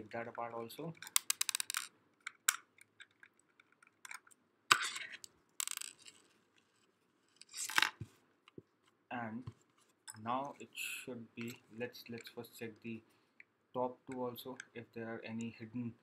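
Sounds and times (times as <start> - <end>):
plastic parts scraping: 1.0 - 8.0.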